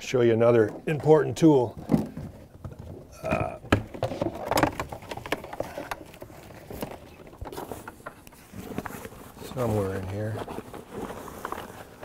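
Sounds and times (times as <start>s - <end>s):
rummaging through a bag: 1.6s - 12.0s.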